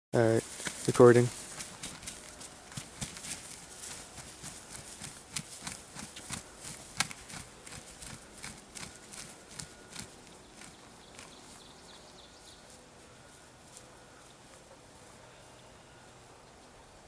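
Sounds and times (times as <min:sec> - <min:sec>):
turkey wings beating on grass: 0:00.4 - 0:11.3.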